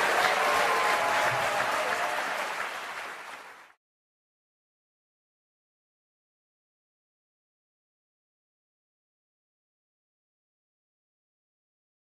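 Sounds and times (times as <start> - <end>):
audience applauding: 0.0 - 3.8.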